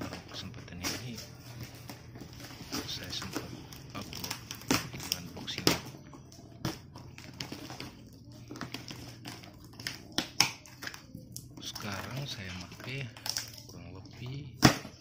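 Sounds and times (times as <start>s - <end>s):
packing tape tearing: 2.4s - 5.8s.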